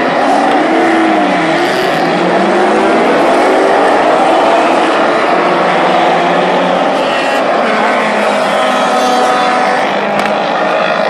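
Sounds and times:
race car engines accelerating past: 0.0s - 11.0s.

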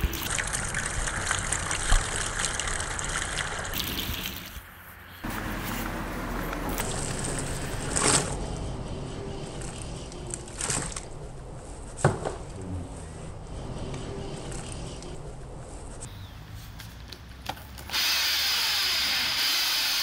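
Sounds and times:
powder pouring into water: 0.0s - 4.6s.

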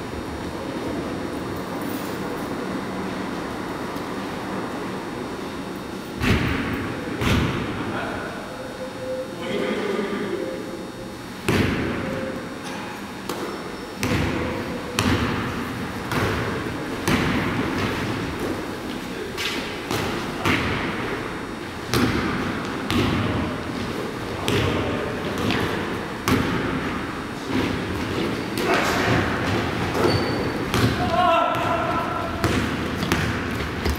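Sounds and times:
basketball bouncing on hardwood floor: 29.9s - 31.7s, 32.4s - 33.9s.

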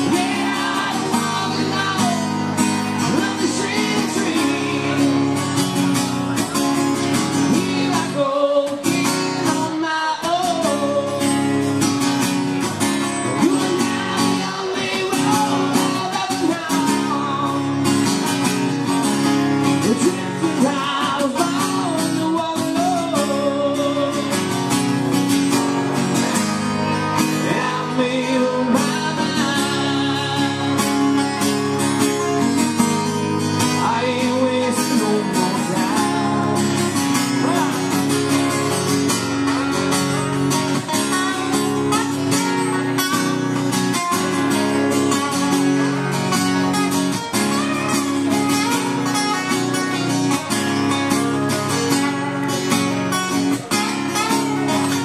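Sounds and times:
man singing: 0.0s - 11.8s, 12.9s - 18.6s, 19.5s - 24.8s, 27.1s - 32.1s, 32.8s - 39.8s
acoustic guitars strumming: 0.0s - 55.0s.

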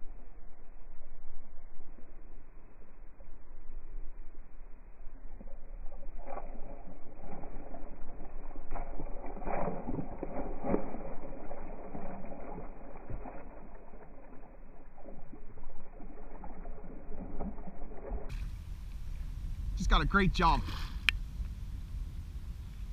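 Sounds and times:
fish splashing in water: 5.5s - 18.8s.

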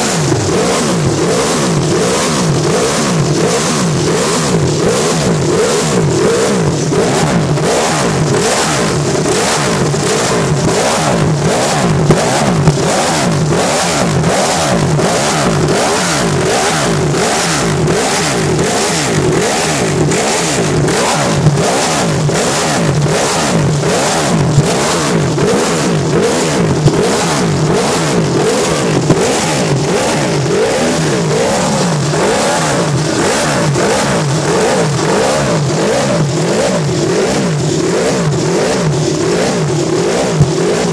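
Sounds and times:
motorcycle engine revving: 0.0s - 40.9s
exhaust pops: 0.1s - 40.9s.

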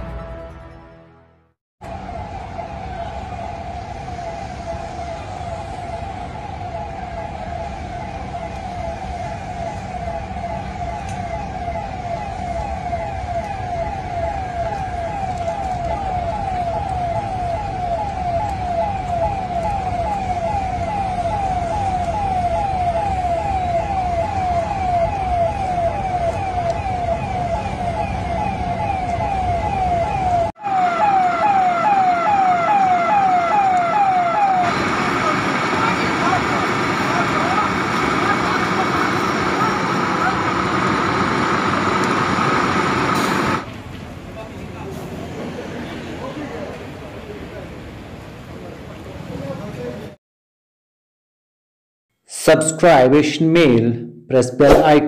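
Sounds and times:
emergency vehicle siren wailing: 1.8s - 44.2s.

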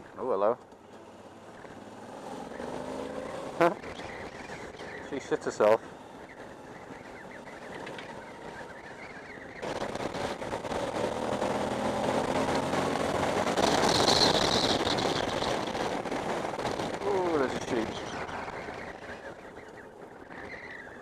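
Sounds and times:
motorcycle engine running: 0.0s - 21.0s
wind noise: 9.6s - 19.4s.

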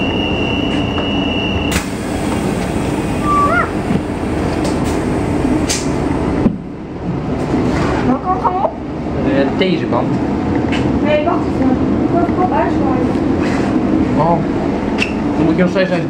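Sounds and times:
high door warning tone: 0.0s - 4.1s
train doors clunking shut: 0.0s - 6.8s
train rumble: 0.0s - 16.0s.

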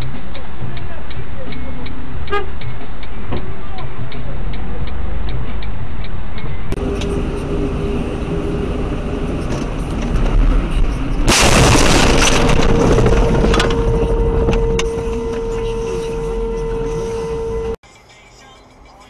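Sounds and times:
car road noise: 0.0s - 19.0s
steady tone: 4.5s - 17.8s
loud car crash: 6.8s - 16.6s.

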